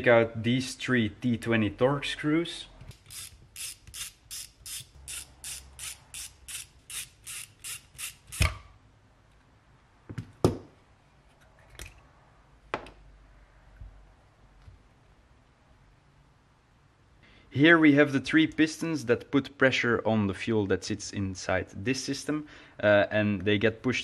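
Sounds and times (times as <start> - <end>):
ratcheting screwdriver clicking: 2.9 - 8.5.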